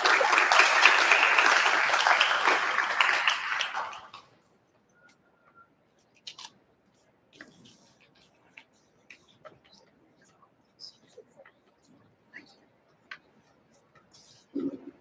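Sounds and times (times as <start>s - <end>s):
audience applause: 0.0s - 4.2s.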